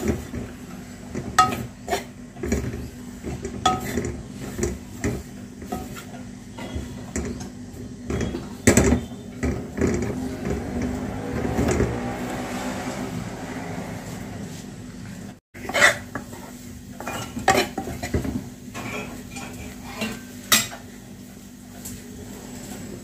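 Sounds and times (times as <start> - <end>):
metal ladle scraping a pan: 0.0 - 7.5, 15.6 - 20.7.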